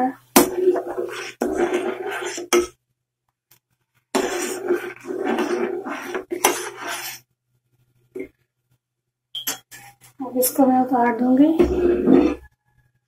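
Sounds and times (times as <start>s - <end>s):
syrup bubbling in saucepan: 0.3s - 2.8s, 3.7s - 7.4s.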